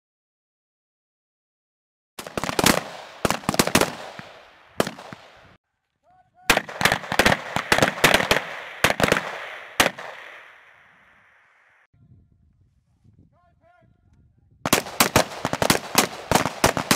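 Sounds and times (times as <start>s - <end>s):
rifle shots echoing: 2.2s - 5.6s, 6.5s - 11.9s, 14.7s - 16.9s.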